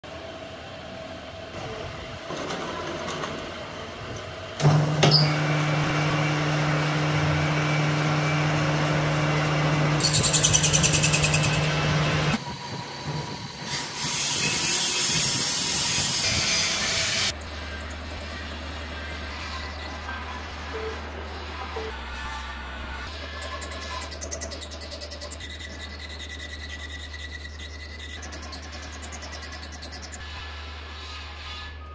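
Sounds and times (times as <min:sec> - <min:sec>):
lathe humming: 0:04.6 - 0:12.4.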